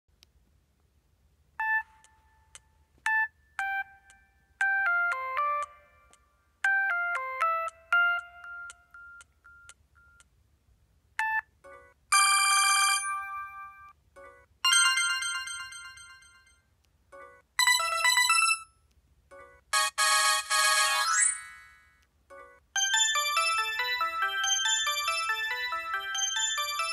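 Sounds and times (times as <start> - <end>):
phone ringtone melody: 3.1 - 10.2, 11.2 - 16.6, 17.2 - 18.7, 19.7 - 21.7, 22.3 - 26.9
ringtone snippets: 19.8 - 26.9.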